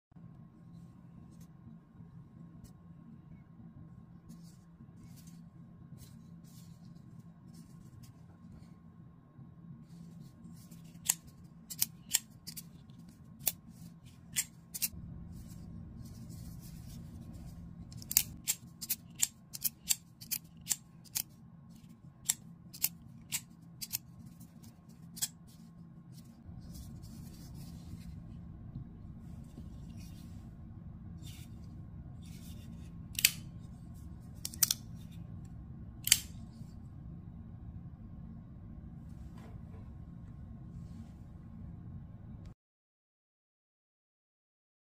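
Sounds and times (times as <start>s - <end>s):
steady low hum: 0.2s - 42.6s
folding knife metallic clicks: 36.0s - 36.4s.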